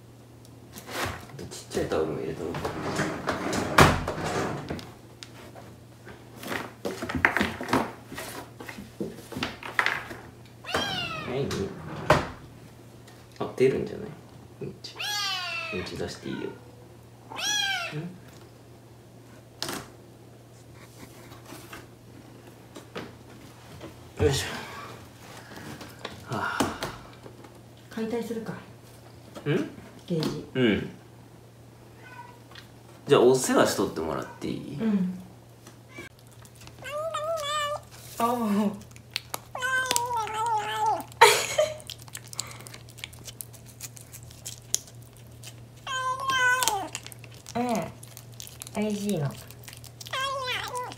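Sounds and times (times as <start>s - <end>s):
kitten meow-like cry: 10.6s - 11.5s, 15.0s - 18.1s, 32.0s - 32.4s, 36.8s - 37.9s, 39.5s - 41.2s, 45.8s - 47.0s, 50.0s - 50.9s
kitten licking and chewing: 36.1s - 50.9s
litter pellets rustling: 36.2s - 50.9s.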